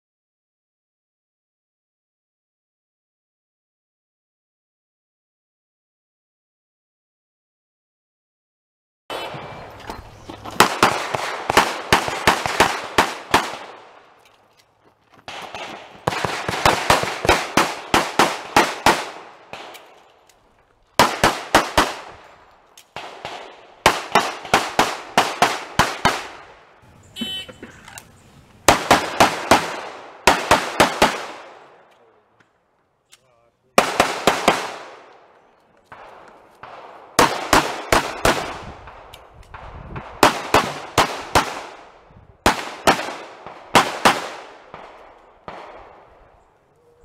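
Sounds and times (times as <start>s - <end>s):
handgun shots echoing: 15.3s - 20.4s.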